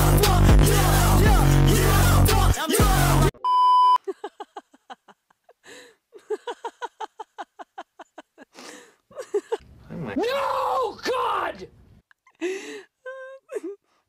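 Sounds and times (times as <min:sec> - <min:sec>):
music: 0:00.0 - 0:03.3
censor bleep tone: 0:03.4 - 0:04.0.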